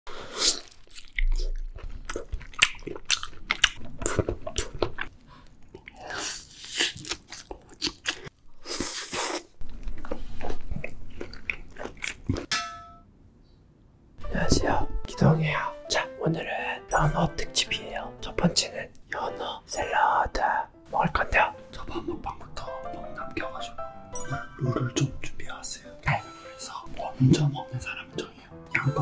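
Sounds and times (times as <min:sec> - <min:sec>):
wet chewing and smacking: 0:00.6 - 0:12.5.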